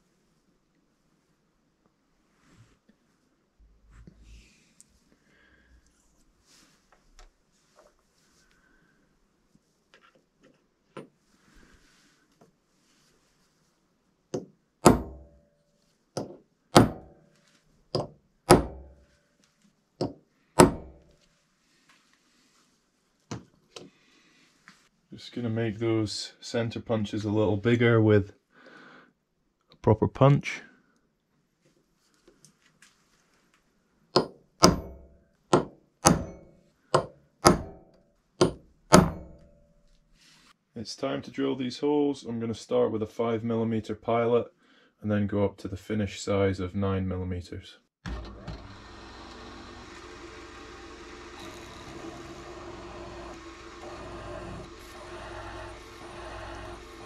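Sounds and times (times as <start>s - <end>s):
hammer striking metal punch: 14.8s - 15.4s, 16.2s - 17.2s, 18.0s - 19.0s, 20.0s - 21.0s, 34.2s - 39.6s.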